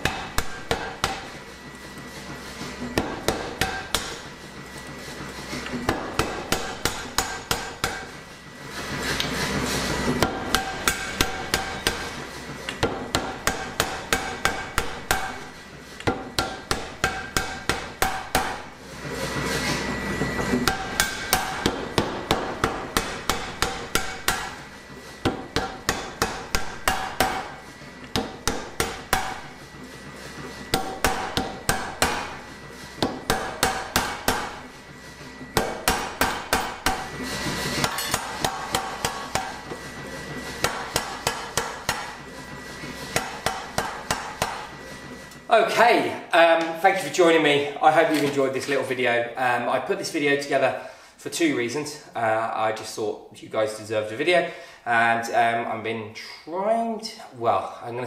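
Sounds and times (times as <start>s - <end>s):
electric motor hum and whine: 0.0s - 53.4s
power hammer blows: 19.4s - 45.2s.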